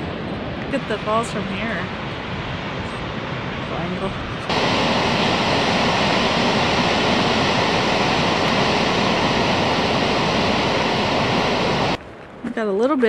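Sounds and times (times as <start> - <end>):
waterfall rushing: 4.5 - 12.0.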